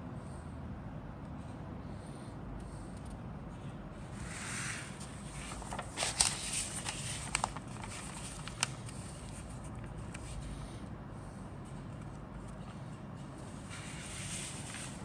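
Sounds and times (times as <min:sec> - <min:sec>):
paper pages rustling: 0:04.5 - 0:10.7, 0:11.6 - 0:15.0.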